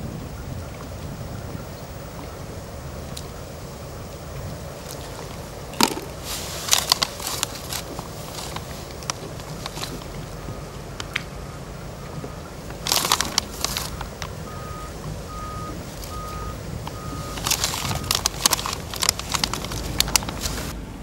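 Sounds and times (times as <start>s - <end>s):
plastic bags crinkling: 4.6s - 11.2s, 12.6s - 20.8s
bait clattering into bucket: 4.9s - 10.2s, 12.7s - 14.4s, 16.9s - 20.7s.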